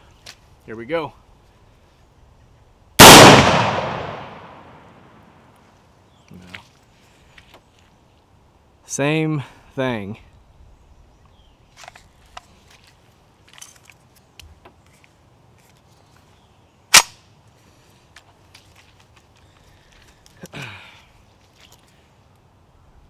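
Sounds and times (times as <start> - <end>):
pistol action snapping: 3.0 - 4.6.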